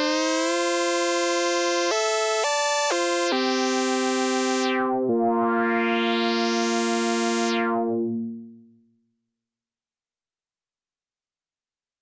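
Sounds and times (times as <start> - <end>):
synthesizer playing sustained notes: 3.2 - 8.7.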